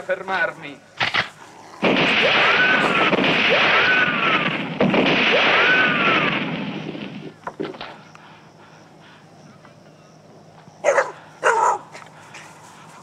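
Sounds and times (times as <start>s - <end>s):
echoing gunshots: 1.0s - 7.4s
whining ricochets: 1.0s - 7.4s.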